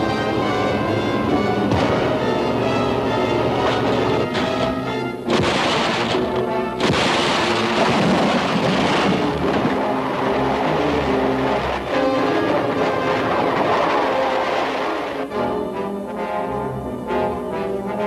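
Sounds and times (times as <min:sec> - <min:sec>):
orchestral film score: 0:00.0 - 0:18.0
explosion blasts: 0:01.7 - 0:02.2, 0:05.3 - 0:11.4
rushing noise: 0:05.3 - 0:15.4.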